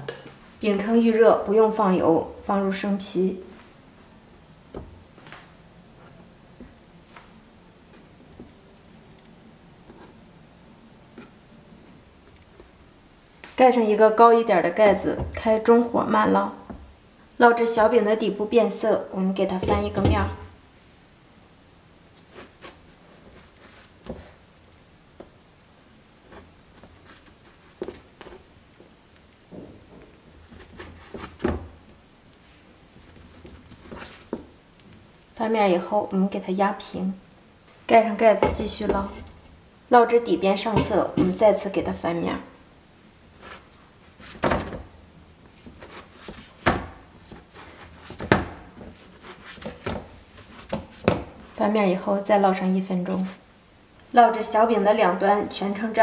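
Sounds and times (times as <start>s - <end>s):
spatula scraping and flipping dough: 38.3s - 39.5s, 43.3s - 44.8s, 45.6s - 51.3s
spatula and buns thudding on pan: 40.7s - 41.4s.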